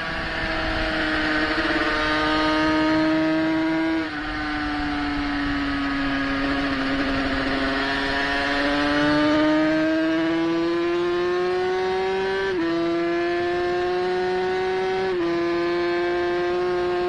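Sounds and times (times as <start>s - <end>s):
racing motorcycle engine: 0.0s - 17.0s.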